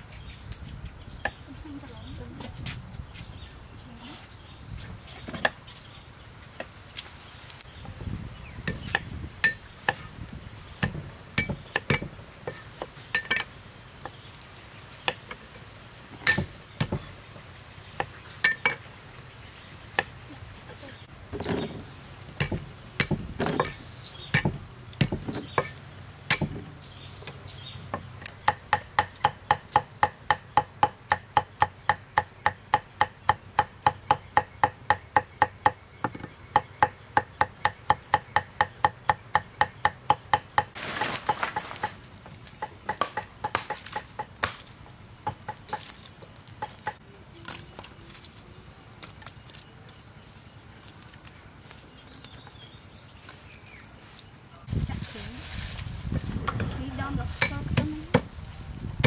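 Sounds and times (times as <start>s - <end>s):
knife chopping on wooden block: 24.4s - 26.6s.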